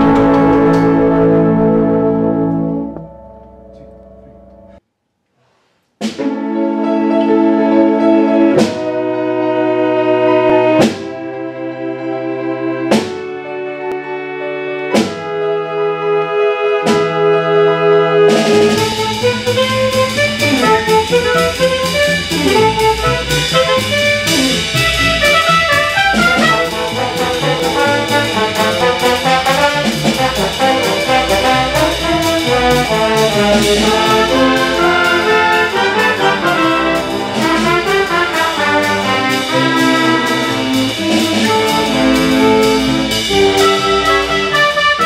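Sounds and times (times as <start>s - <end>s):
drum kit steady beat: 0.0s - 1.7s, 18.5s - 45.0s
jazz big band playing: 0.0s - 4.8s, 6.0s - 45.0s
trombones: 0.0s - 4.8s, 6.0s - 45.0s.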